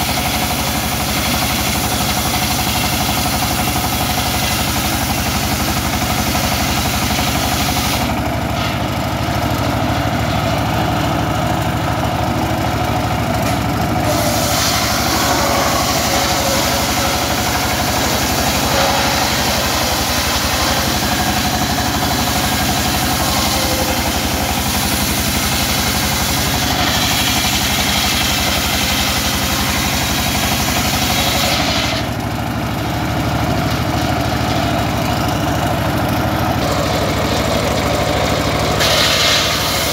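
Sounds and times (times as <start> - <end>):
saw blade cutting wood: 0.0 - 11.5, 12.2 - 32.2, 38.8 - 39.9
diesel engine running: 0.0 - 39.9.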